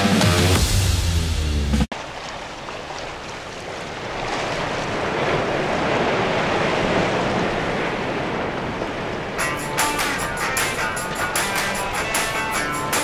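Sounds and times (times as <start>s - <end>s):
steady rushing noise: 3.9s - 13.0s.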